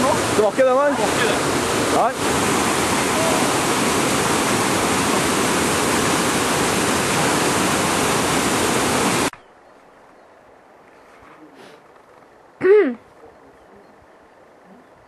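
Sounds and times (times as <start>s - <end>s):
waterfall rushing: 0.0s - 9.3s.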